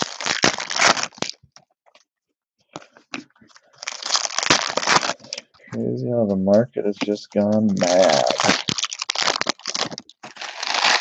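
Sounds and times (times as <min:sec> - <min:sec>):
foil wrapper crinkling and tearing: 0:00.0 - 0:01.4, 0:03.6 - 0:05.6, 0:07.0 - 0:11.0.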